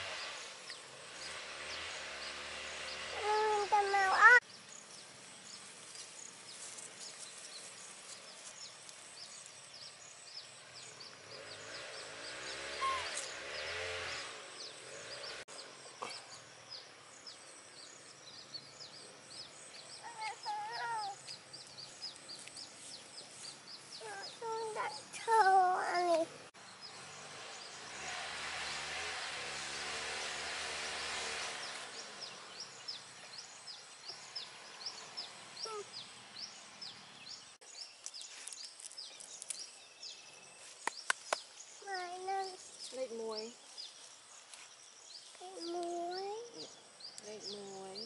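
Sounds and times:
rapid faint chirping: 0:00.4 - 0:27.8.

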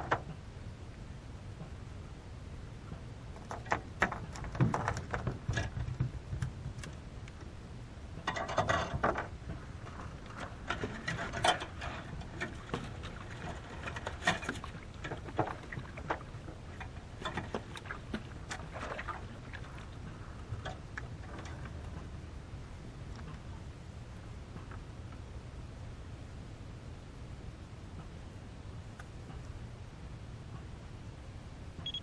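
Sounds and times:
low steady rumble: 0:00.0 - 0:32.0.

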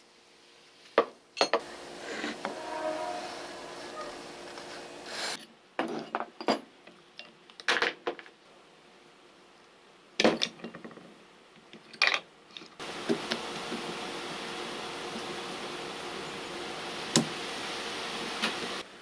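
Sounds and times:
steady hiss: 0:00.0 - 0:05.4, 0:12.8 - 0:19.0.

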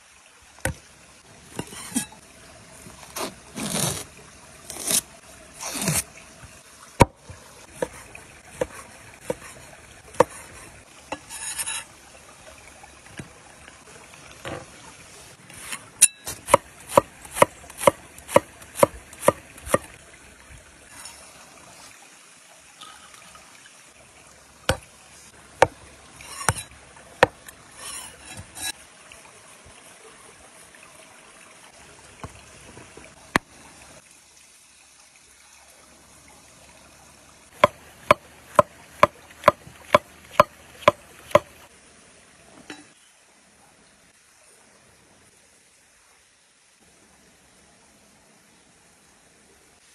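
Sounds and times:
stream trickling: 0:00.0 - 0:49.9
cleaver chopping on wooden board: 0:16.3 - 0:19.8, 0:26.4 - 0:27.4, 0:37.6 - 0:41.5.

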